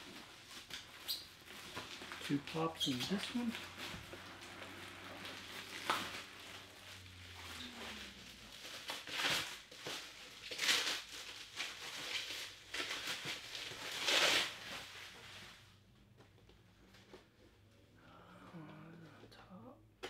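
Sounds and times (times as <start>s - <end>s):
packing material rustling: 0.0s - 15.6s.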